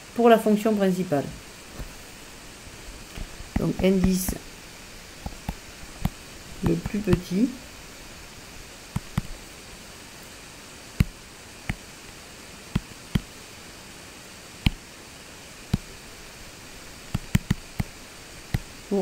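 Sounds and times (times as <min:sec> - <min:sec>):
faint hiss: 0:00.0 - 0:19.0
stylus tapping on tablet screen: 0:03.2 - 0:04.4, 0:05.2 - 0:07.3, 0:08.9 - 0:09.4, 0:11.0 - 0:11.8, 0:17.1 - 0:17.9.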